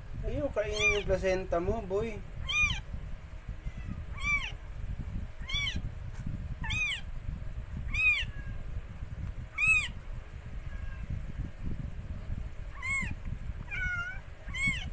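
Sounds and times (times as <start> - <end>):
kitten mewing: 0.7 - 1.1, 2.4 - 2.8, 3.6 - 4.6, 5.4 - 5.8, 6.6 - 7.0, 7.9 - 8.6, 9.6 - 10.0, 12.8 - 14.9.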